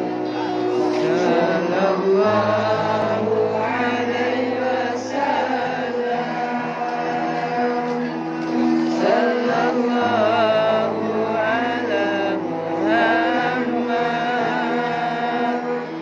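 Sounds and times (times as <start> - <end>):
person chanting melodically: 0.0 - 16.0.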